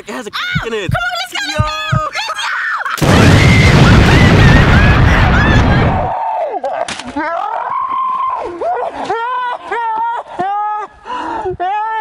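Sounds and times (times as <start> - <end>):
people yelling: 1.2 - 10.2
loud rumbling noise: 3.0 - 6.1
watermelon bursting: 3.0 - 6.1.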